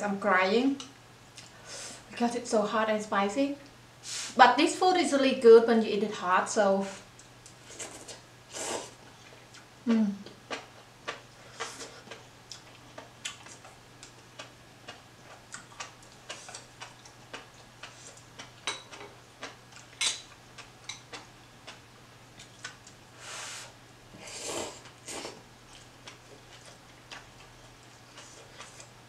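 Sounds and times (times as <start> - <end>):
person chewing noodle soup: 7.7 - 21.8, 22.4 - 23.0, 24.3 - 29.0.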